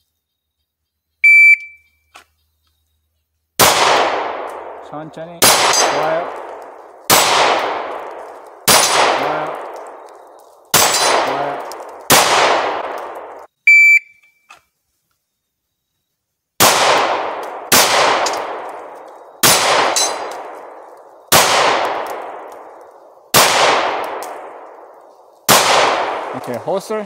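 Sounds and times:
electronic shot timer beep: 0:01.2 - 0:01.9, 0:13.7 - 0:14.3
handgun shots ringing on steel: 0:05.4 - 0:08.1, 0:08.7 - 0:10.0, 0:10.8 - 0:13.3, 0:16.6 - 0:20.7.

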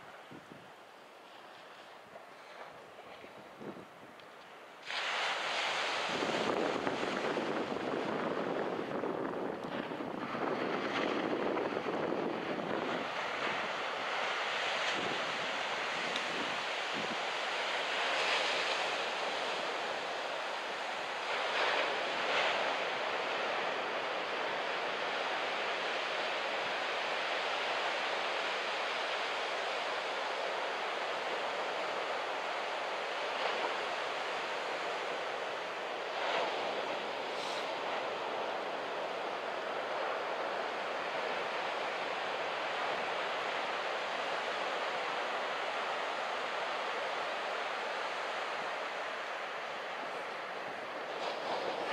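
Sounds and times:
wind buffeting microphone: 0:03.2 - 0:04.2, 0:05.7 - 0:20.2
surf breaking on beach: 0:04.8 - 0:51.9.

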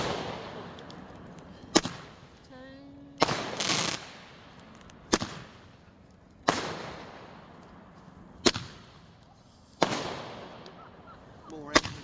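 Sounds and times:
firework bangs with echo: 0:00.0 - 0:00.8, 0:01.7 - 0:02.2, 0:03.2 - 0:04.5, 0:05.1 - 0:05.6, 0:06.4 - 0:07.4, 0:08.4 - 0:09.0, 0:09.8 - 0:11.0.

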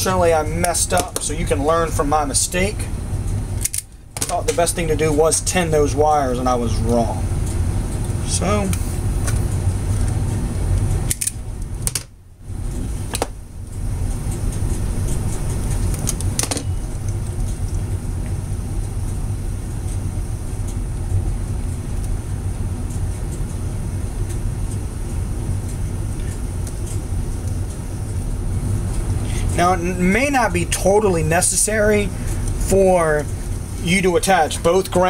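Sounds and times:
low background rumble: 0:00.0 - 0:35.0
wires clicking while twisted: 0:07.4 - 0:23.6.

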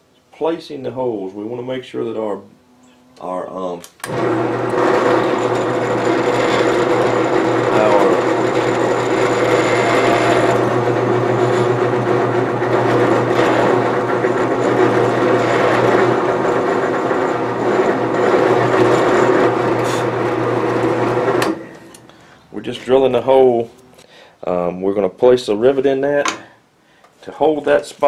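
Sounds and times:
drill press motor running: 0:04.0 - 0:22.1
drill bit drilling through handle: 0:04.1 - 0:22.0.

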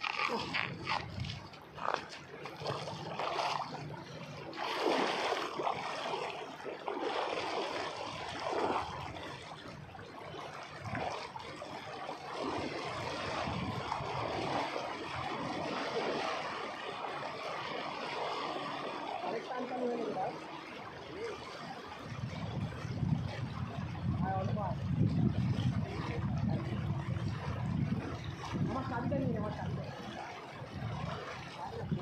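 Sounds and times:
river current rushing: 0:00.0 - 0:08.9
water splashing around wading person: 0:00.0 - 0:32.0.

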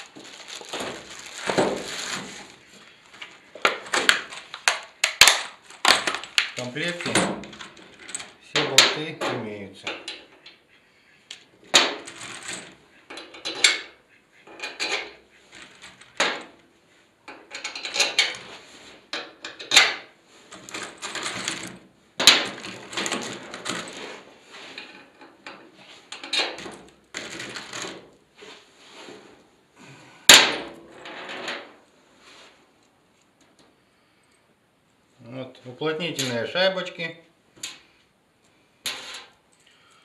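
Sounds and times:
packaging rustling: 0:00.0 - 0:06.7
metal parts clinking and knocking: 0:17.3 - 0:18.4.

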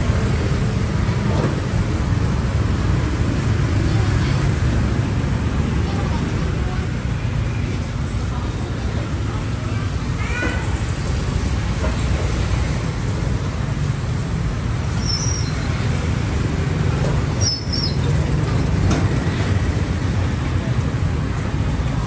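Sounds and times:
traffic rumble: 0:00.0 - 0:22.0.

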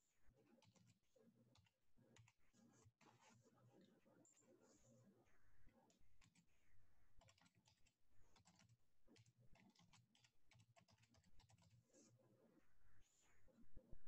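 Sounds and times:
keyboard typing: 0:06.2 - 0:06.4, 0:07.2 - 0:11.9.

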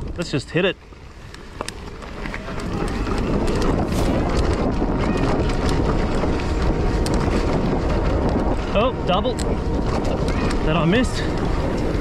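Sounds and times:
gravel and bike rattles: 0:00.0 - 0:12.0
wind buffeting microphone: 0:00.0 - 0:12.0
tyres rumbling over stones: 0:00.9 - 0:08.4.

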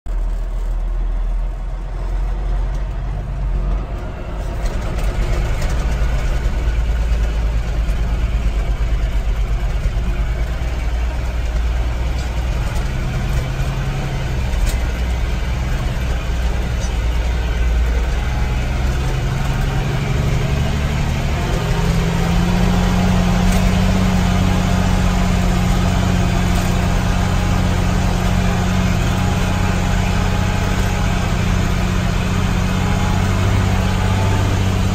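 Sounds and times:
heavy vehicle engine running: 0:00.0 - 0:34.9.

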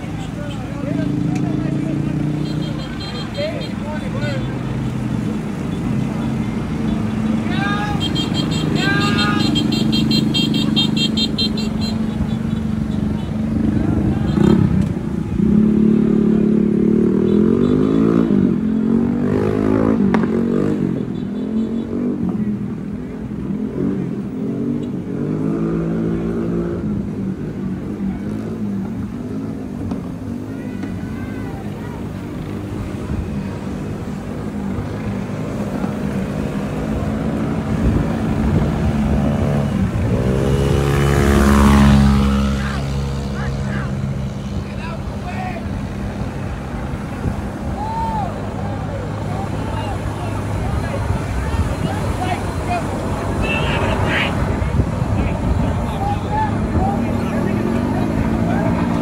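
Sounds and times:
low traffic rumble: 0:00.0 - 0:59.0
motorcycle engine revving: 0:03.8 - 0:22.6, 0:32.1 - 0:44.6.

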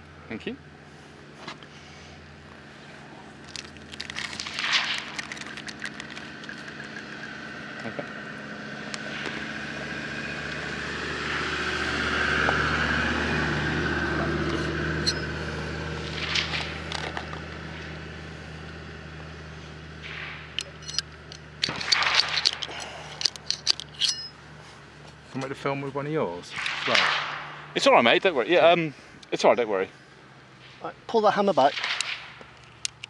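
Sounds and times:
engine drone: 0:00.0 - 0:33.0
ramrod scraping and clicking: 0:20.5 - 0:24.4.

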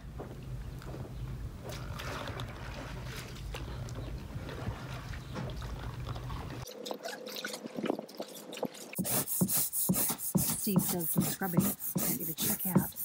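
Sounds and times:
brush scrubbing: 0:08.8 - 0:13.0.

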